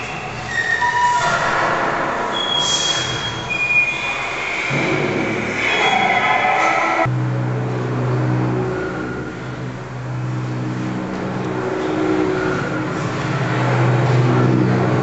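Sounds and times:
low bass drone: 4.7s - 6.4s, 7.0s - 15.0s.

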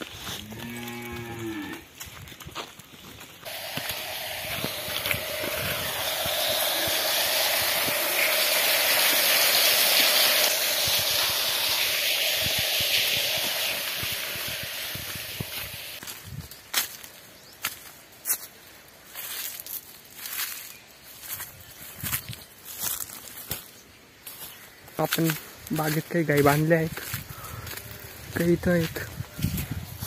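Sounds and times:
water gushing into a well: 3.4s - 16.0s.

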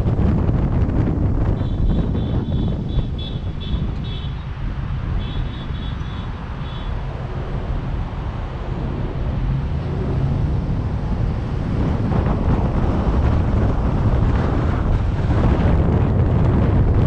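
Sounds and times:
road traffic rumbling: 0.0s - 17.0s
wind buffeting microphone: 0.0s - 17.0s.

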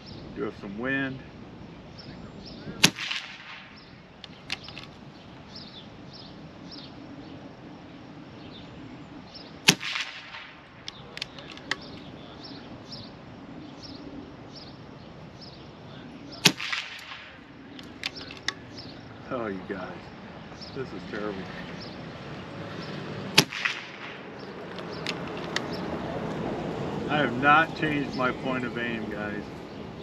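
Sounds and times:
air rifle shots: 2.7s - 5.0s, 9.6s - 12.0s, 16.4s - 18.8s, 23.3s - 25.8s.

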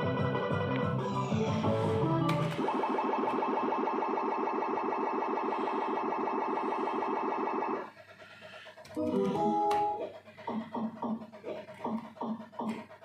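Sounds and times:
slot machine count-up beeps: 9.0s - 10.0s.

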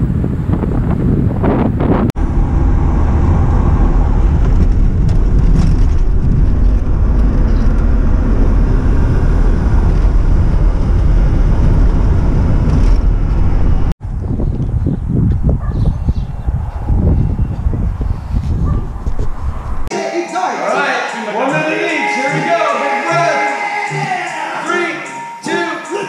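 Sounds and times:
van engine and road rumble: 0.0s - 19.9s.

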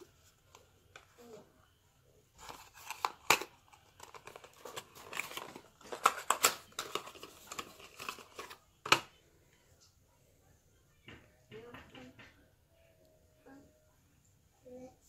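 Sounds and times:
packaging crinkling and tearing: 2.4s - 9.0s.

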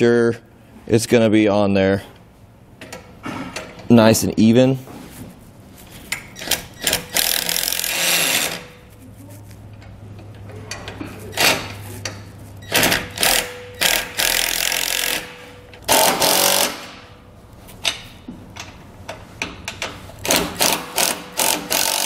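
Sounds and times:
cordless drill running in spurts: 15.9s - 16.8s, 20.6s - 22.0s.

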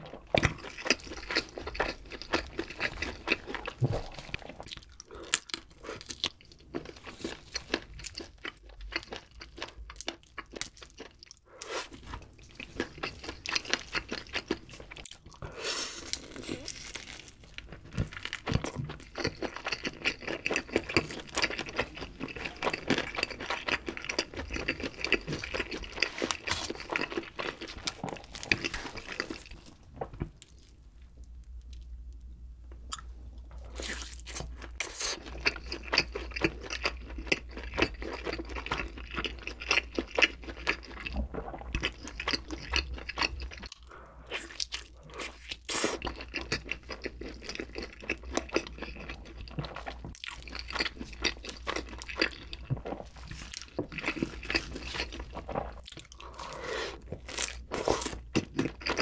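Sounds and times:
chewing and crunching chicken: 0.0s - 30.8s, 32.9s - 59.0s.

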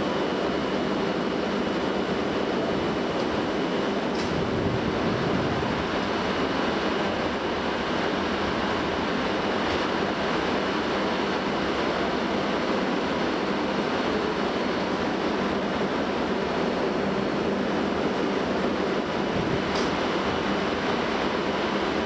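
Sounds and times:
diesel railcar engines running: 0.0s - 22.0s.

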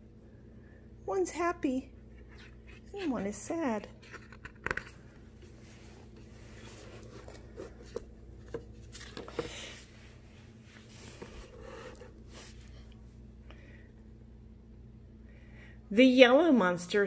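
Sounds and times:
low steady hum: 0.0s - 17.0s
book pages turning: 2.2s - 9.9s.

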